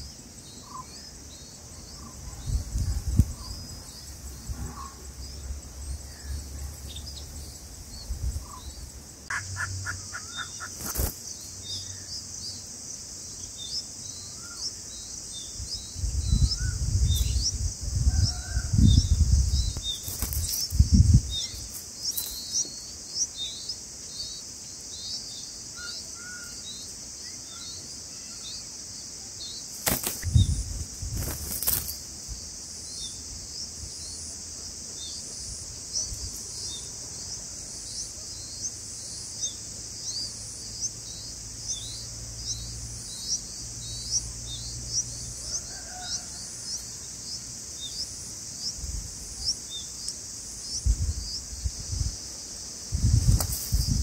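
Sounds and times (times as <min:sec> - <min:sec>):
nestlings chirping: 0:00.0 - 0:28.6, 0:29.4 - 0:32.1, 0:35.0 - 0:52.1
insect hiss: 0:00.0 - 0:54.0
bird wings flapping: 0:10.6 - 0:11.2, 0:20.0 - 0:20.8, 0:29.7 - 0:30.4, 0:31.1 - 0:32.0, 0:53.2 - 0:54.0.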